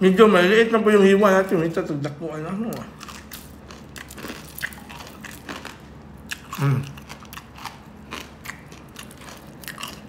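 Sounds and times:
crunchy food being chewed: 2.6 - 10.0.

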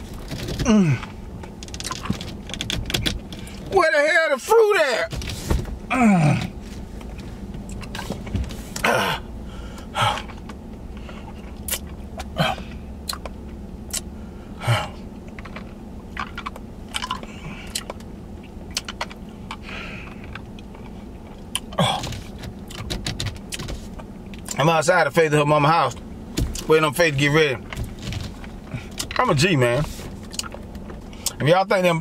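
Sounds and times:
low car cabin hum: 0.0 - 32.0
man gasping: 8.8 - 10.4, 12.3 - 12.8.

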